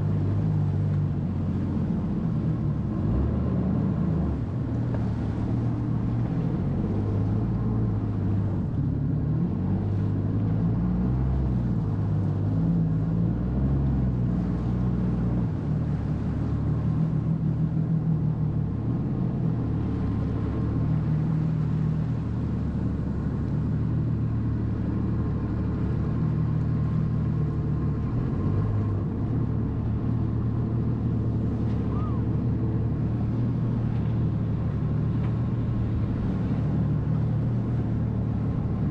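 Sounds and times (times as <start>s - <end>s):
jet ski engine revving: 0.0s - 38.9s.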